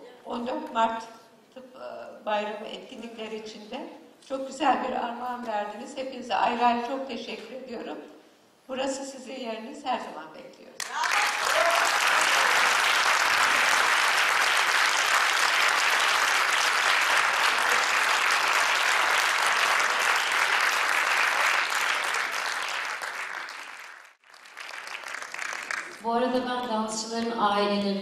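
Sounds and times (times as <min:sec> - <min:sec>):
audience applause: 0:10.8 - 0:26.0.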